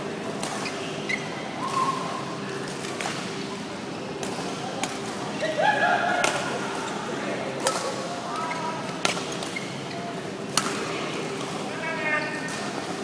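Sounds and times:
shoe squeal: 0.6 - 2.0
badminton rackets hitting shuttlecock: 10.5 - 10.9.

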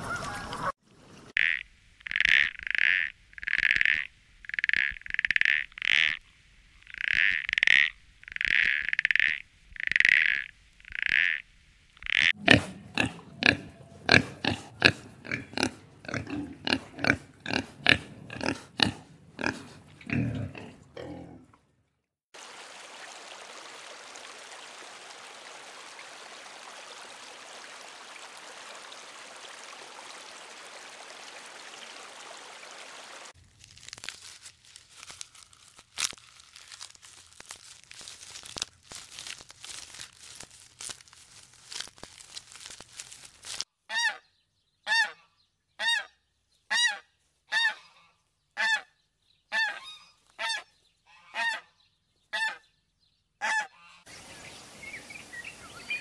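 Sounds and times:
goose honking: 0.0 - 0.7, 49.6 - 51.6, 53.4 - 54.1
leafy branches crackling and snapping: 33.4 - 43.7.

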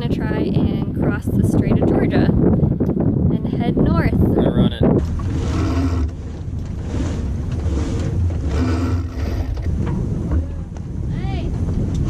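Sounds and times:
wind buffeting microphone: 0.0 - 12.0
rushing air and water: 3.8 - 12.0.

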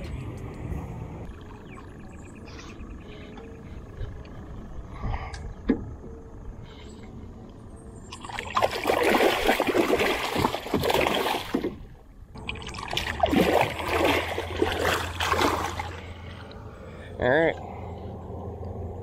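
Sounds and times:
fish thrashing and splashing: 8.1 - 16.2.

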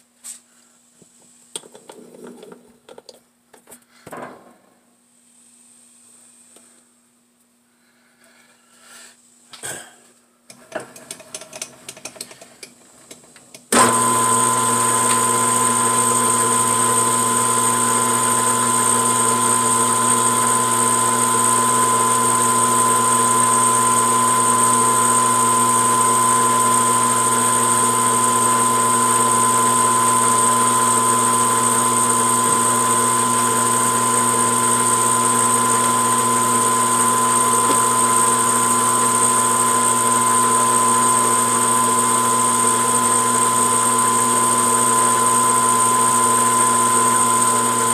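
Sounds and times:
metal lathe high whine: 13.8 - 47.9.

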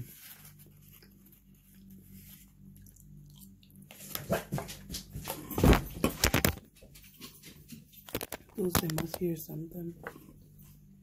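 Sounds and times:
person chewing: 2.6 - 4.3.

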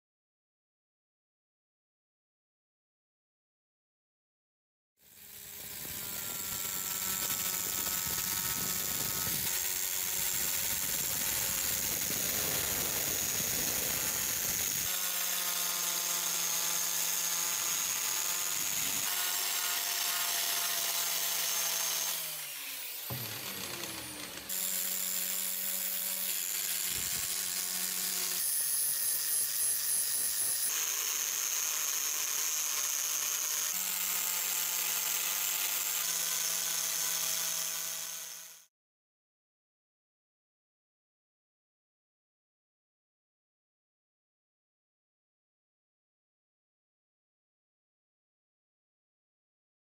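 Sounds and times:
angle grinder polishing steel: 5.1 - 38.6.

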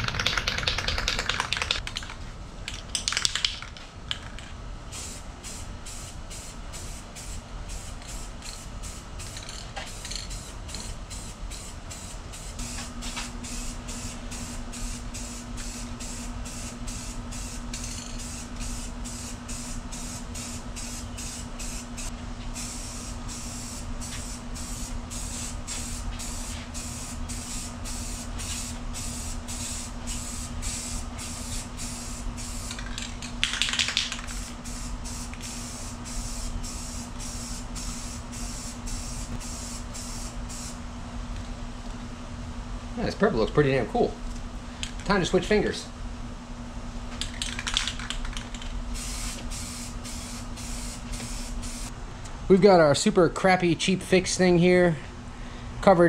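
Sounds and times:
steady low hum: 0.0 - 56.0
aerosol spray can hissing: 9.9 - 40.8, 47.2 - 51.9.

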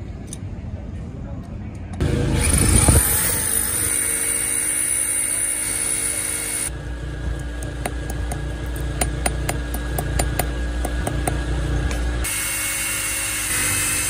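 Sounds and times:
electric drill boring into steel: 2.1 - 6.7, 12.2 - 14.0.

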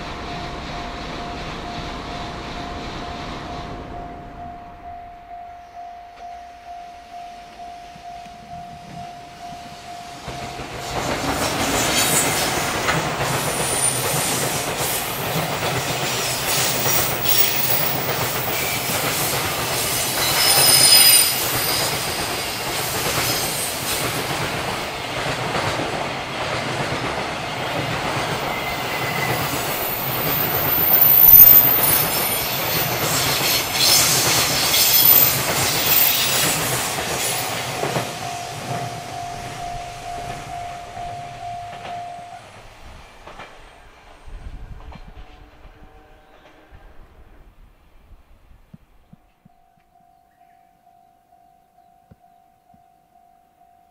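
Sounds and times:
high-pitched wheel squeal: 20.1 - 22.6, 28.5 - 32.8.

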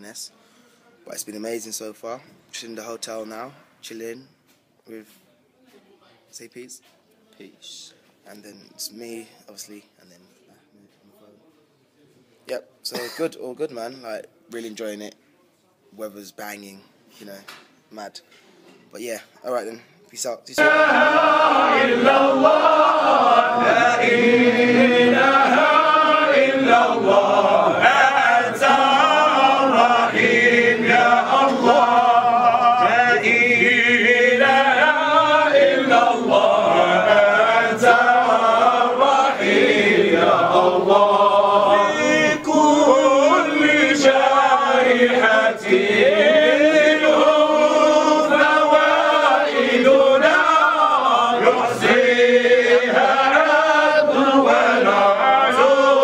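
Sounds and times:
men chanting in unison: 20.6 - 56.0.

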